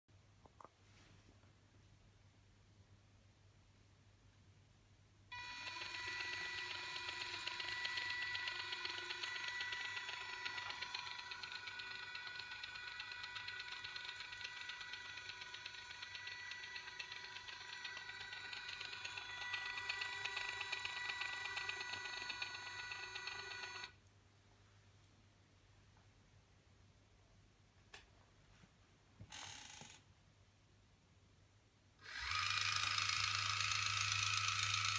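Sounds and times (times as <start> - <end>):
small electric motor whine: 5.3 - 24.0, 32.0 - 34.9.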